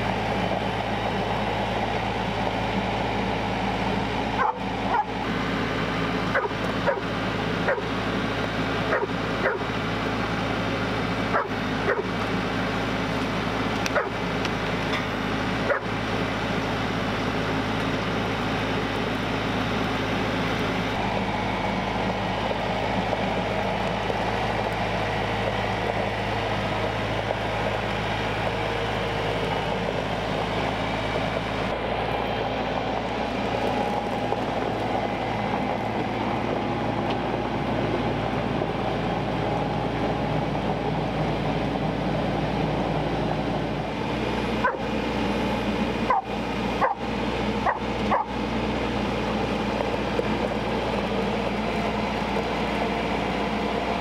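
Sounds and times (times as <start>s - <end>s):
tractor diesel engine running: 0.0s - 54.0s
dog barking: 4.4s - 5.1s, 6.3s - 7.0s, 7.7s - 7.9s, 8.9s - 9.7s, 11.3s - 12.1s, 13.9s - 14.2s, 15.7s - 15.9s, 44.6s - 44.9s, 46.1s - 47.0s, 47.6s - 48.4s.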